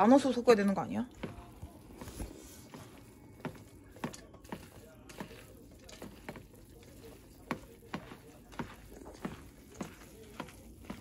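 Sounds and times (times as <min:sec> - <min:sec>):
utensils tapping and clicking: 0:00.6 - 0:11.0.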